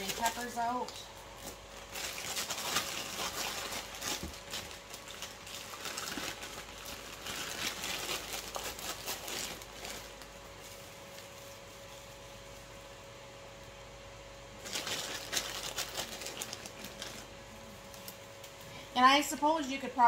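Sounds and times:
plastic bag rustling: 0:00.0 - 0:12.9, 0:14.5 - 0:18.6.

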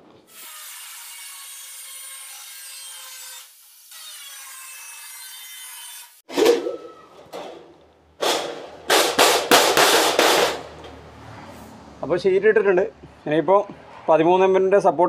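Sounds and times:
angle grinder cutting steel sheet: 0:08.2 - 0:10.9.

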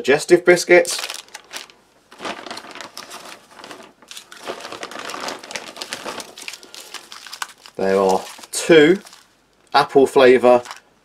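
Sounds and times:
paper bag rustling: 0:00.7 - 0:09.4, 0:10.4 - 0:10.9
foil and plastic packets crinkling: 0:00.7 - 0:10.9.

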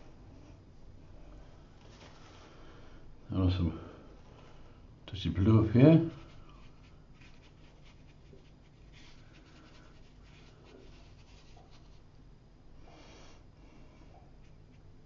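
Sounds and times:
brush swishing on paper: 0:06.0 - 0:12.1.

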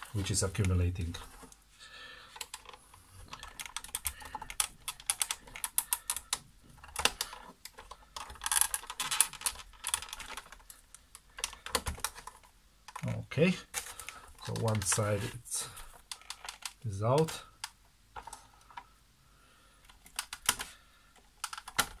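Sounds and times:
plastic clips clicking and rattling: 0:02.3 - 0:13.1, 0:15.7 - 0:18.9, 0:19.8 - 0:22.0.

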